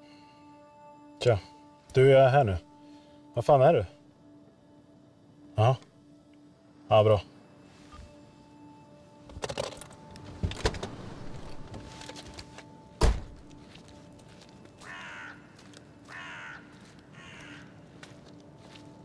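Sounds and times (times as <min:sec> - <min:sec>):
car door opening and slamming: 0:10.3 - 0:11.9, 0:13.0 - 0:13.5
bird cawing: 0:14.8 - 0:17.8.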